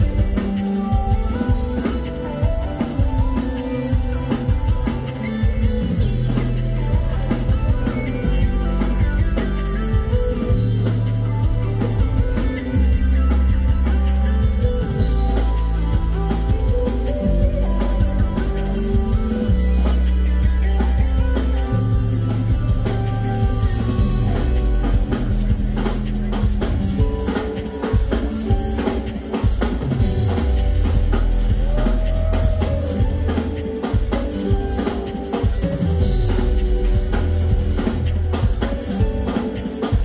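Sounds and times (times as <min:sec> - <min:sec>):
drum kit beat: 0:00.0 - 0:40.0
deep bass notes: 0:05.6 - 0:27.2, 0:29.8 - 0:33.4, 0:35.8 - 0:38.6.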